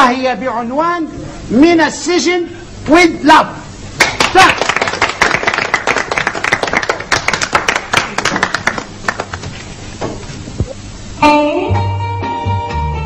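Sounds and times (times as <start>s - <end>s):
audience applauding: 4.0s - 9.6s.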